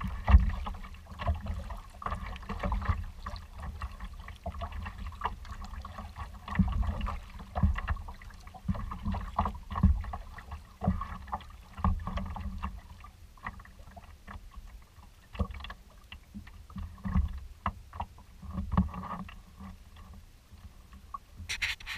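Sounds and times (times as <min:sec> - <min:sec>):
waves slapping against kayak hull: 0:00.0 - 0:14.4.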